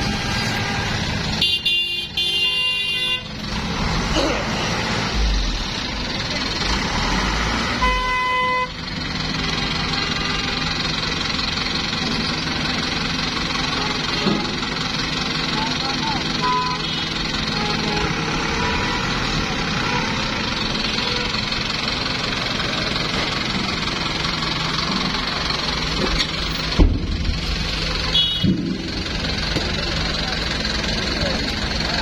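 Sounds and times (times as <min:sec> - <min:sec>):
vehicle horns honking: 0:00.0 - 0:03.4, 0:07.8 - 0:08.8, 0:09.4 - 0:10.7, 0:16.4 - 0:21.4, 0:28.0 - 0:28.6
truck engines rumbling: 0:00.0 - 0:32.0.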